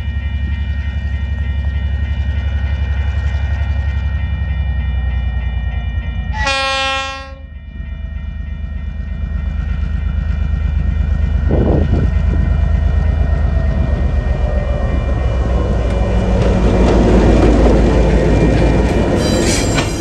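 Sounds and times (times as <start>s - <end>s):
diesel locomotive engines rumbling: 0.0s - 20.0s
train horn blast: 6.3s - 7.5s.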